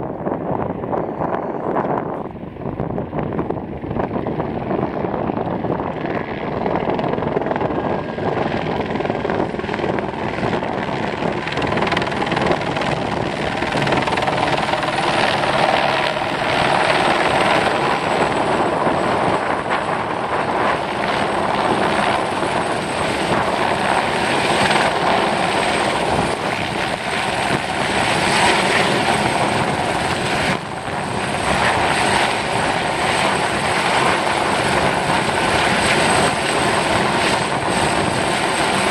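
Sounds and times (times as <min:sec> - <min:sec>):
helicopter rotor beating: 0:00.0 - 0:38.9.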